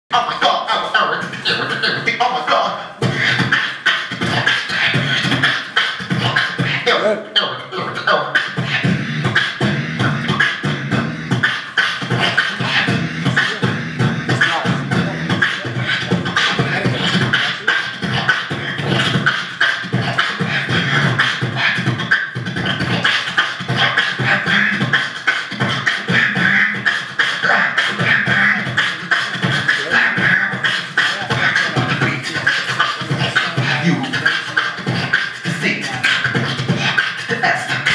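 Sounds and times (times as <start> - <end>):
man beatboxing: 0.1 - 37.9.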